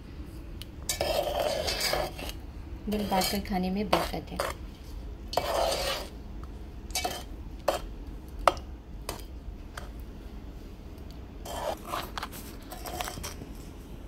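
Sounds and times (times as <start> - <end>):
spoon scraping a metal pot: 0.9 - 4.6, 5.3 - 6.1, 6.9 - 7.9, 11.4 - 13.4.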